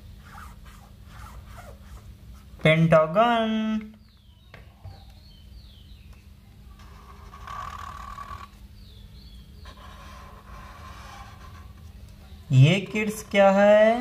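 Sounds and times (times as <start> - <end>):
marker scratching on paper: 0.2 - 2.5, 6.8 - 8.4, 9.6 - 11.9.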